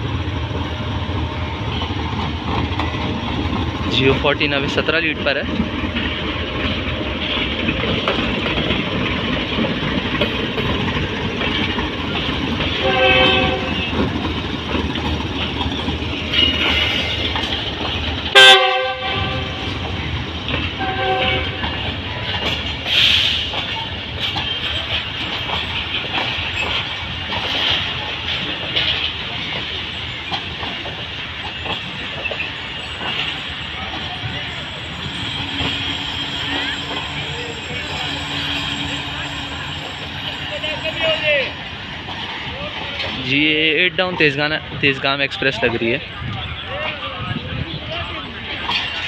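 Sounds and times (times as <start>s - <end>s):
train wheels on track: 0.0s - 49.0s
train horn: 12.7s - 13.9s, 18.3s - 19.6s, 20.8s - 21.8s, 34.9s - 41.0s.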